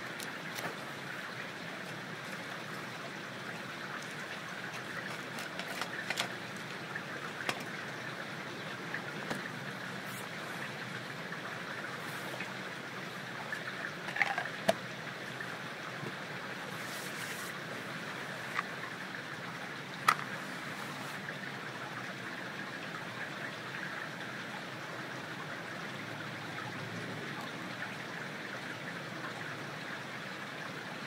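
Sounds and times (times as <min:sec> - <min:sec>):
rainwater running: 0:00.0 - 0:21.5.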